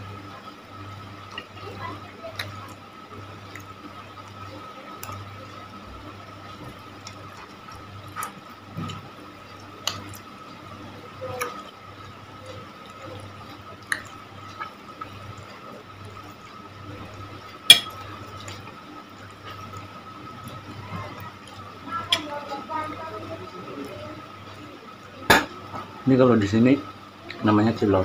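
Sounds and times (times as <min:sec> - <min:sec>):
low background hum: 0:00.0 - 0:28.0
wet chewing: 0:12.5 - 0:16.3.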